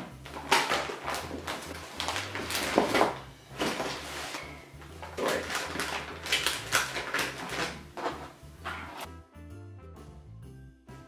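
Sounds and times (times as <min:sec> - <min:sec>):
wrapping paper crinkling: 0:00.0 - 0:08.9
paper gift bag rustling: 0:00.0 - 0:09.1.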